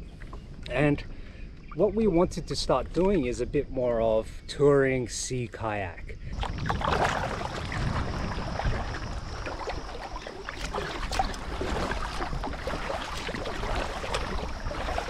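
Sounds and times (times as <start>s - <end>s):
paddle dipping and dripping: 6.2s - 15.0s
water lapping along hull: 6.2s - 15.0s.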